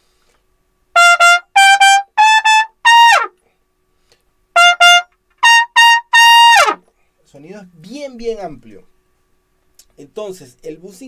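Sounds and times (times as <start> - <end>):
trumpet playing: 0.9 - 3.4, 4.6 - 6.8.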